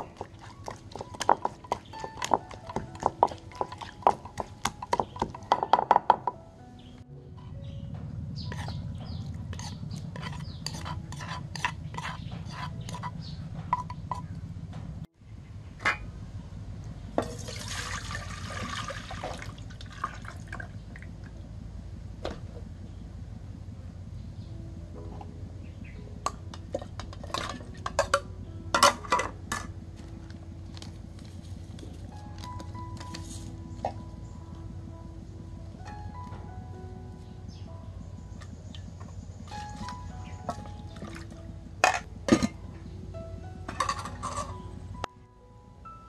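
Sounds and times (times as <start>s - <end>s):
steady low hum: 0.0s - 46.0s
metal spoon scraping clay mortar: 8.4s - 14.3s.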